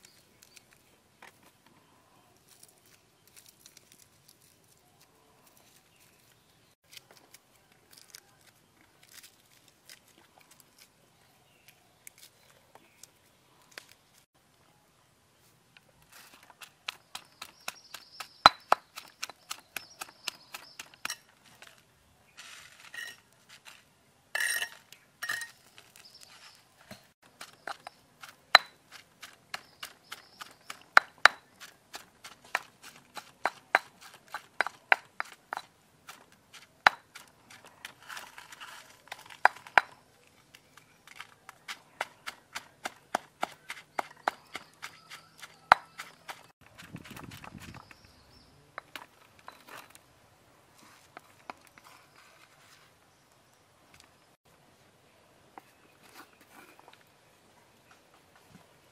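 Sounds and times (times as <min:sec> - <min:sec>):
pestle pounding in stone mortar: 0:16.6 - 0:21.2, 0:27.3 - 0:37.3, 0:41.7 - 0:47.9.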